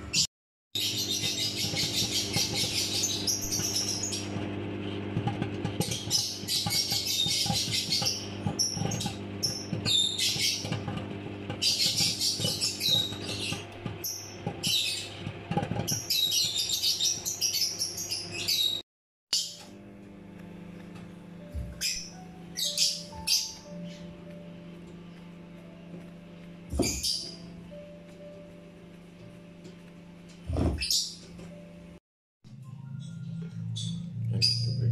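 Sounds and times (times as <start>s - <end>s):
birds chirping: 0.0s - 18.8s, 20.8s - 28.6s, 30.5s - 31.6s, 32.9s - 34.9s
microwave oven humming: 0.0s - 18.8s, 19.4s - 34.9s
popcorn popping: 0.8s - 18.7s.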